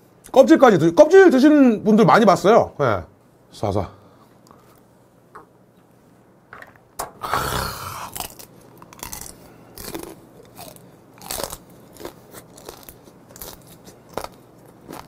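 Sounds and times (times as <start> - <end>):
crab shell crunching while chewing: 7.9 - 15.0.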